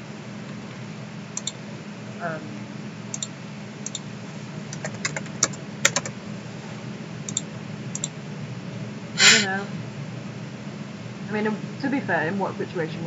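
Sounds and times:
keyboard keys clicking: 4.7 - 6.1.

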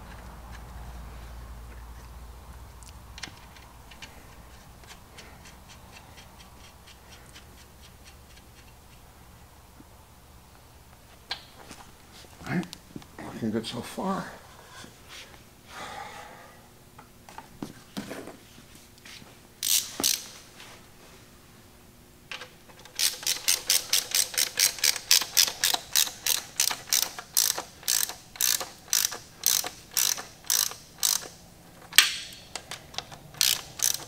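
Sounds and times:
hand ratchet clicking: 19.6 - 20.3, 22.3 - 34.0.

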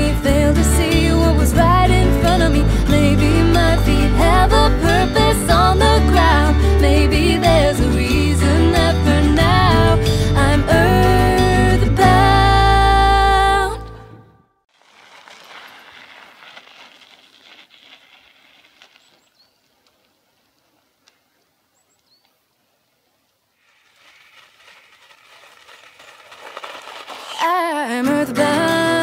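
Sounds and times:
tyre crunching through snow: 14.7 - 20.5, 23.6 - 28.1.

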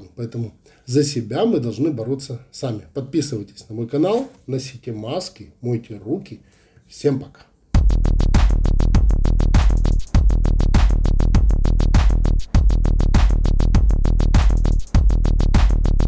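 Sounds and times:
electronic music with heavy bass: 7.8 - 16.0.

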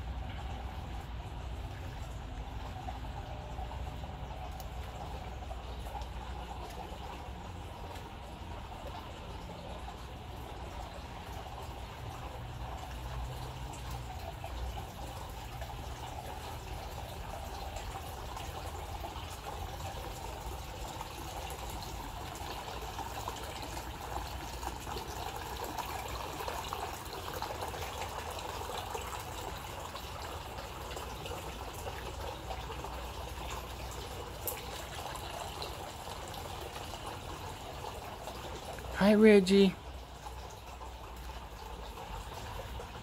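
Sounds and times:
low steady hum: 0.0 - 27.6
running trickling water: 0.0 - 43.0.

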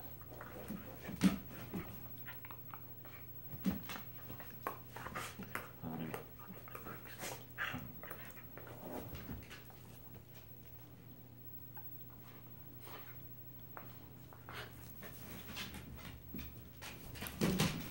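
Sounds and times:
paws scuffling on couch: 0.0 - 11.0, 12.2 - 17.9
dogs growling: 4.3 - 9.7.

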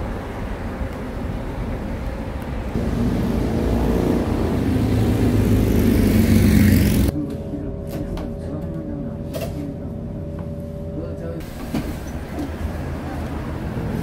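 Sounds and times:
vehicle engine approaching: 0.0 - 7.1
road traffic: 0.0 - 14.0.

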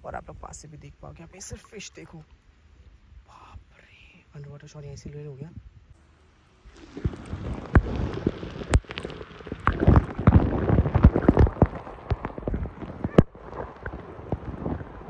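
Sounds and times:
water splashing and sloshing: 6.3 - 15.0.

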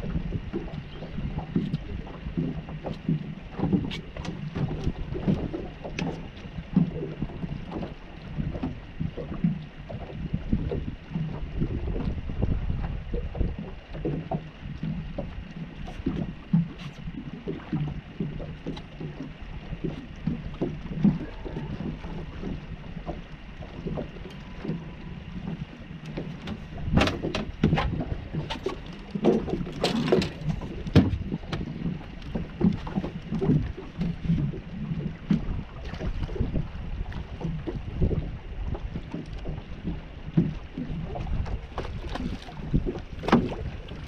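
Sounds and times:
water lapping against boat hull: 0.0 - 44.0
wind on microphone: 0.0 - 44.0
sharp knocks and splashy clatter: 13.3 - 34.6, 35.2 - 44.0.

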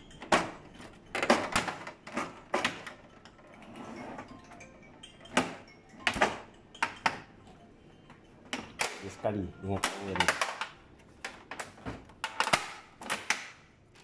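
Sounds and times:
plastic clicks and knocks: 9.8 - 13.6.

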